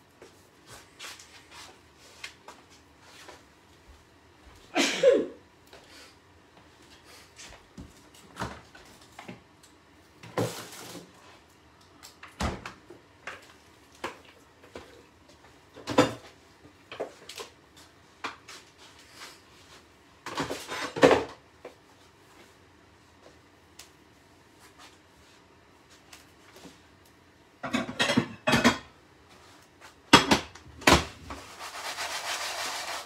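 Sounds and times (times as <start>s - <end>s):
kitchen knocks and clicks: 27.6s - 28.9s, 30.1s - 31.1s.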